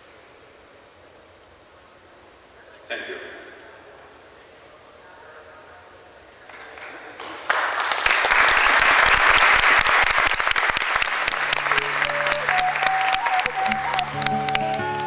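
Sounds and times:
audience applauding: 6.5 - 15.0
music with long held notes: 11.5 - 15.0.

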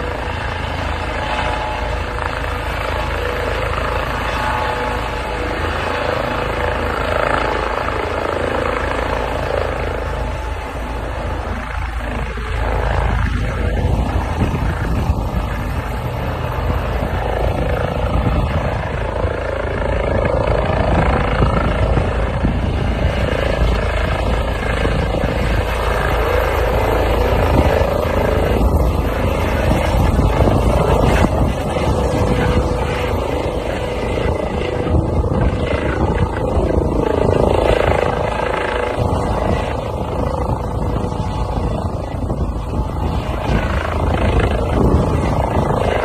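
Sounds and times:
helicopter hovering: 0.0 - 46.0.

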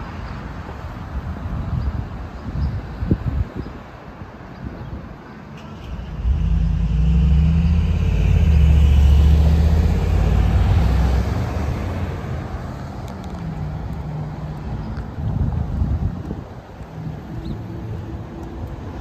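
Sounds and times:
vehicle engine rumble passing: 5.6 - 19.0.

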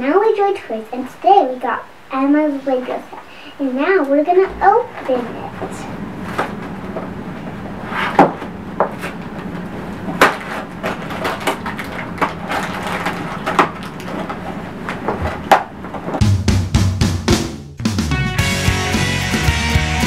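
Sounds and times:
sharp cardboard tearing cracks: 10.2 - 14.3
cardboard rustling and ripping: 10.2 - 14.5.

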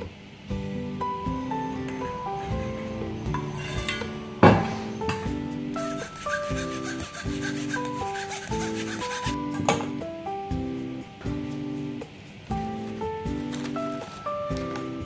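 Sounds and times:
plucked melody background music: 0.0 - 15.0
metal spoon scraping wire sieve: 2.2 - 4.2, 5.8 - 9.4.

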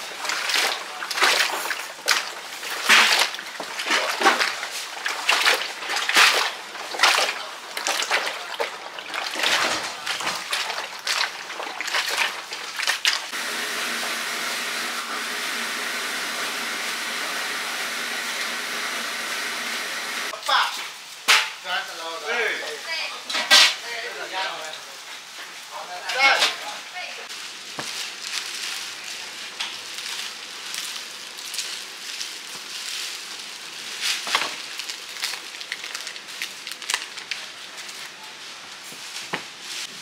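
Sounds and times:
water splashing and sloshing: 0.0 - 20.4
steady hiss: 13.3 - 21.3.

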